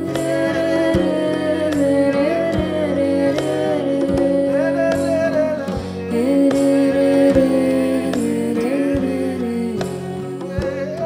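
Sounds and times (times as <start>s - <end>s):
melodic singing: 0.0s - 11.0s
steady drum beat: 0.0s - 11.0s.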